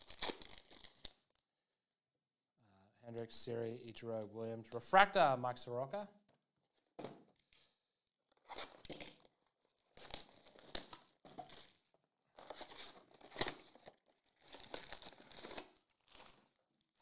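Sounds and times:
plastic shrink wrap tearing and crackling: 0.0 - 1.4, 8.3 - 17.0.

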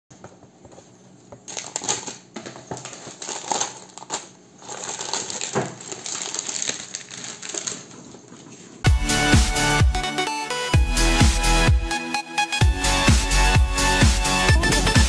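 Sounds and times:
plastic bags crinkling: 1.4 - 8.8
plastic pieces clicking and rattling: 1.5 - 7.9.

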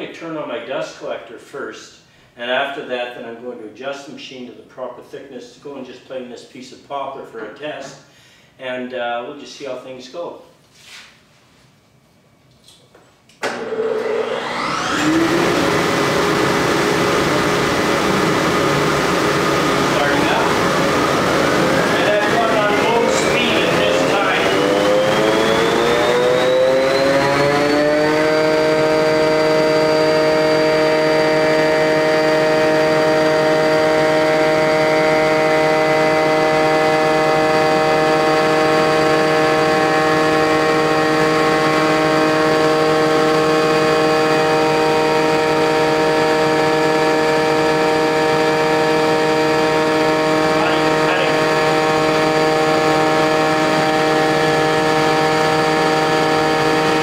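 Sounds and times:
thickness planer whining: 13.3 - 57.0.

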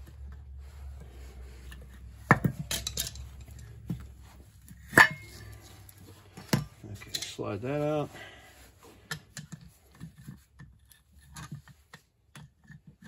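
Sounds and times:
metal tools clinking: 2.3 - 4.0, 4.8 - 6.0, 6.8 - 7.7.

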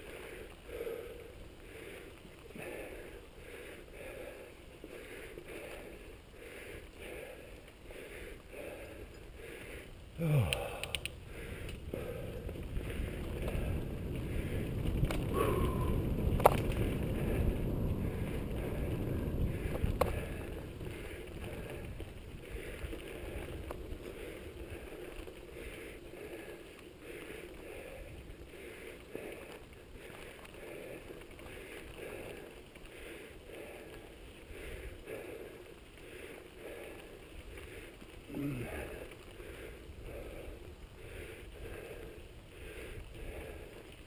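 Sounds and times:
bike tyres rumbling on trail: 0.0 - 44.0
sharp clicks: 10.4 - 11.8.

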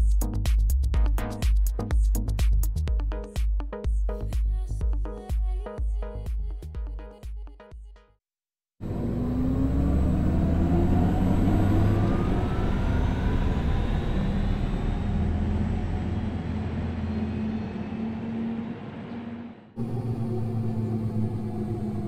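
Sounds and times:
electric car drive hum: 8.8 - 17.5, 19.6 - 22.0
synthesized rising tones: 8.8 - 18.5, 19.8 - 22.0.

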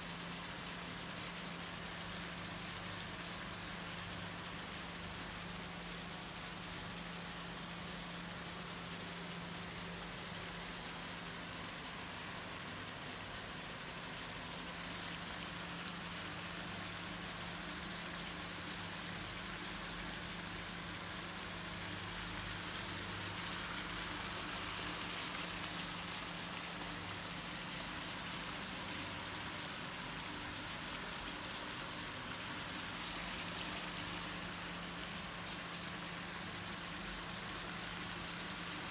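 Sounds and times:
fish sizzling in hot oil: 0.0 - 38.9.

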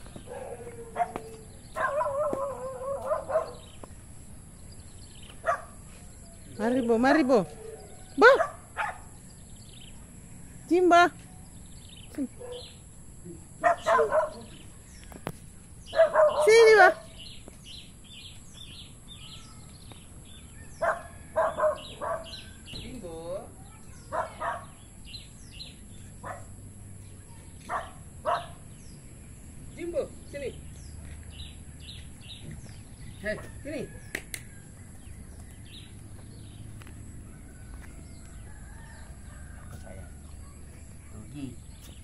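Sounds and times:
bird chirping: 0.0 - 42.0
dog barking: 0.2 - 3.8, 5.4 - 5.9, 7.5 - 9.2, 12.4 - 12.8, 13.6 - 14.6, 15.9 - 17.2, 20.7 - 22.5, 24.0 - 24.8, 26.2 - 26.6, 27.6 - 28.7
rooster crowing: 33.1 - 35.0, 37.2 - 40.6.

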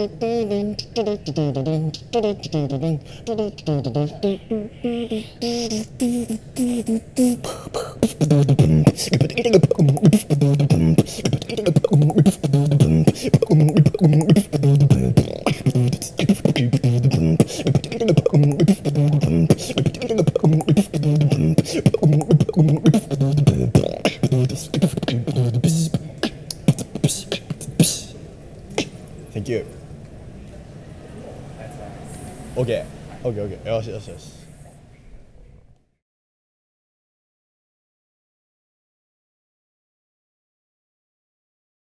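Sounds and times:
beatboxing groove: 0.0 - 29.2
pitched vocal notes: 0.0 - 29.8.

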